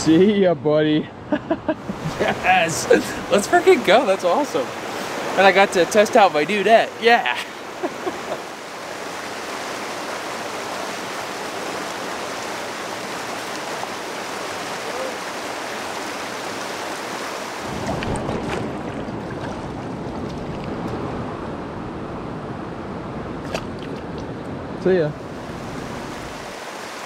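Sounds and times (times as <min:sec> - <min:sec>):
stream water rushing over rocks: 0:01.8 - 0:21.0, 0:25.2 - 0:27.0.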